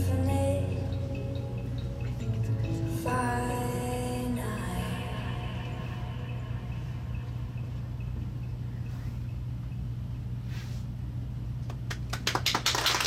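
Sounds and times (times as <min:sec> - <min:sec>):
steady low hum: 0:00.0 - 0:13.0
applause handclaps: 0:11.6 - 0:13.0.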